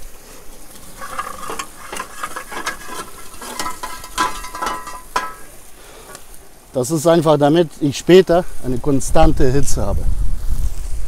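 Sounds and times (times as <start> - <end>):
charcoal clattering into metal firebox: 0.0 - 7.0
metal scoop scraping and clinking: 0.7 - 6.2.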